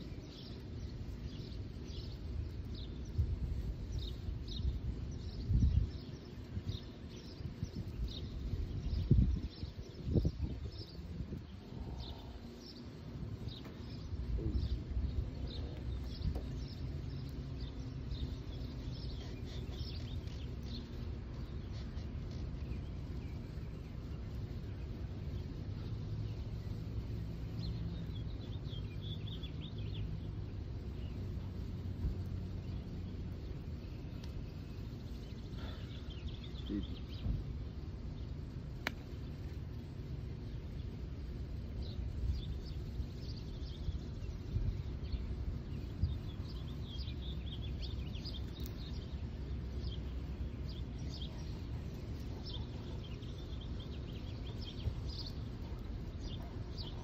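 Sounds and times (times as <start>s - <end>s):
low background rumble: 0.0s - 57.0s
small birds chirping: 0.0s - 57.0s.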